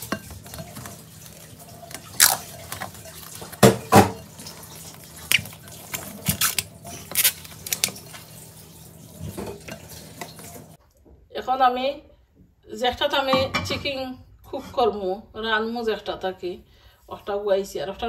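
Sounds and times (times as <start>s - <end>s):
dishes and utensils clattering: 0.0s - 5.0s, 9.2s - 10.8s.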